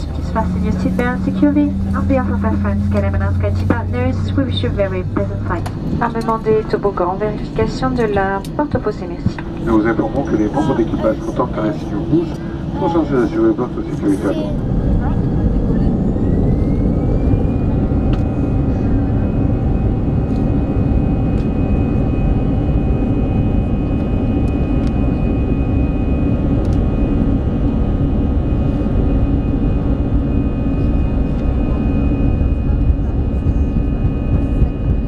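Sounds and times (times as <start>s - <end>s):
jet engines whining and rumbling: 0.0s - 35.0s.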